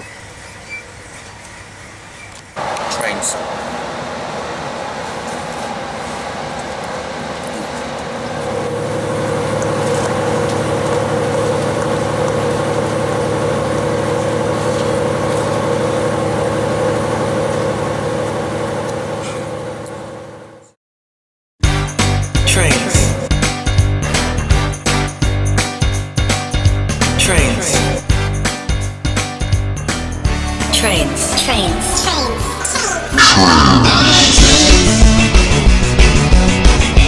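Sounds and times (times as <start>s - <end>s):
train engine running: 0.2s - 20.8s, 22.0s - 37.0s.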